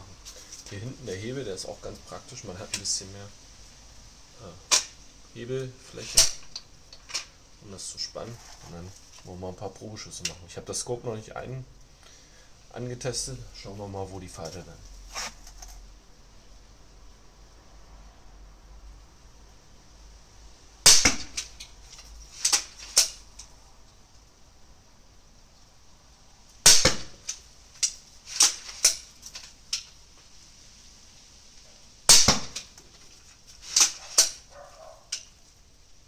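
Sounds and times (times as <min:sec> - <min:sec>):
crossbow string snapping: 0:04.7 - 0:05.0.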